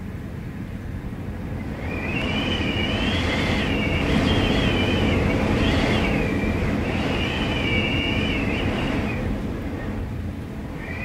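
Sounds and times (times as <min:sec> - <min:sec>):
wind howling through door: 0:00.0 - 0:11.0
wavering high-pitched whistle: 0:01.8 - 0:09.2.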